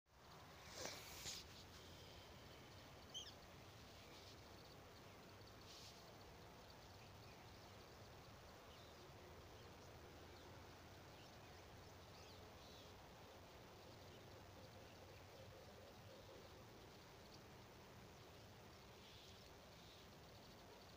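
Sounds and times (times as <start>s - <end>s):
outdoor background hiss: 0.1s - 20.9s.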